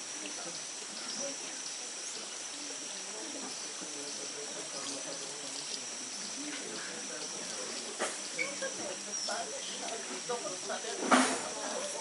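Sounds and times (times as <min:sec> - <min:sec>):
even hiss: 0:00.0 - 0:12.0
faint murmuring voices: 0:00.0 - 0:12.0
high-pitched insect drone: 0:00.0 - 0:12.0.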